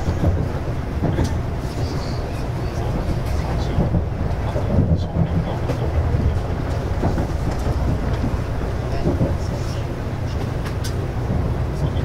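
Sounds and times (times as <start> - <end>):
train running low rumble: 0.0 - 12.0.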